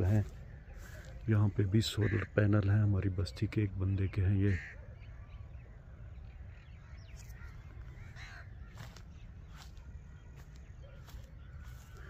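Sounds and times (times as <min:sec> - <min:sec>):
crows cawing: 0:00.0 - 0:02.9, 0:04.2 - 0:05.0, 0:06.6 - 0:12.0.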